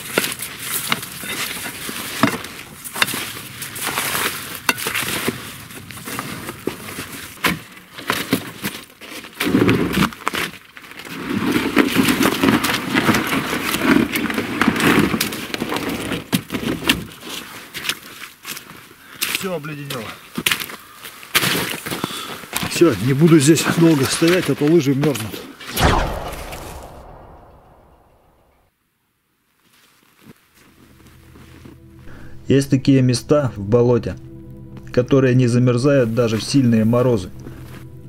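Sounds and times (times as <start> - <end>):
ice crunching and scraping: 0.0 - 22.5.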